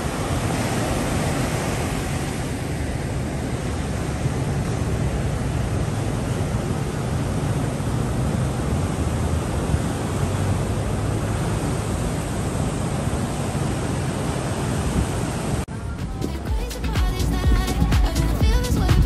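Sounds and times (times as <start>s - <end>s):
surf breaking on beach: 0.0s - 15.7s
music with a beat: 16.0s - 19.0s.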